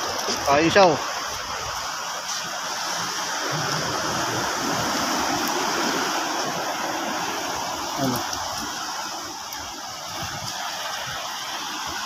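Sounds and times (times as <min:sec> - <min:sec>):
seawater rushing and splashing: 0:00.0 - 0:12.0.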